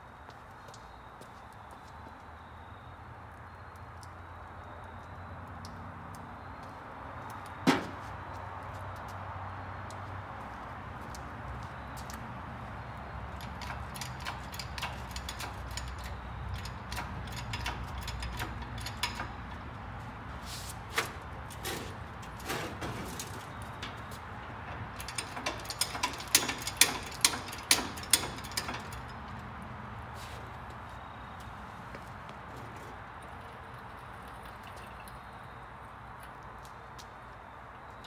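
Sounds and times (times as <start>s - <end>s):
metallic clicks and clanks of hoist: 13.2s - 19.9s, 22.4s - 29.6s.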